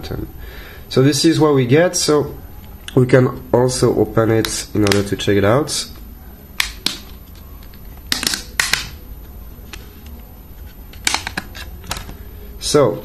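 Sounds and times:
sharp plastic clicks: 4.4s - 5.1s.

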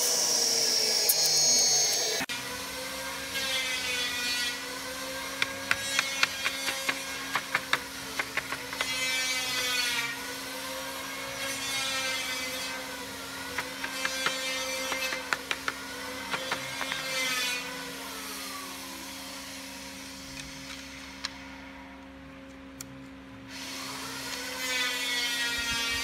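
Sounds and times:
machine humming with whine: 0.0s - 3.3s.

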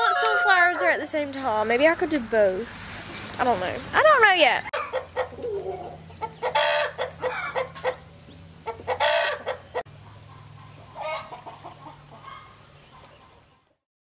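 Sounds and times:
chickens clucking: 4.7s - 13.8s.

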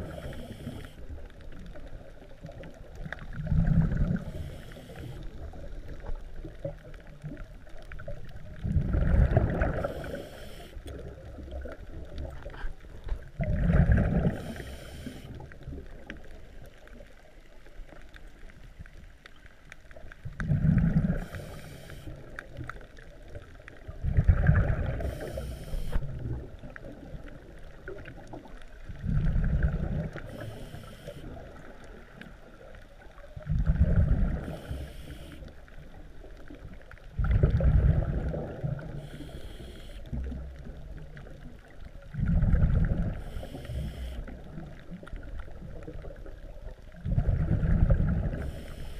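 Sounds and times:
regulator inhale hiss: 0.0s - 1.2s, 4.2s - 5.5s, 9.7s - 11.0s, 14.3s - 15.4s, 21.1s - 22.3s, 24.8s - 26.1s, 30.2s - 31.3s, 34.4s - 35.6s, 38.8s - 40.2s, 43.1s - 44.3s, 48.3s - 48.9s
gurgling exhalation bubbles: 3.3s - 4.4s, 8.6s - 10.1s, 13.4s - 14.6s, 20.4s - 21.5s, 24.0s - 25.4s, 29.0s - 30.2s, 33.4s - 34.5s, 37.2s - 38.9s, 42.1s - 43.2s, 47.0s - 48.5s.

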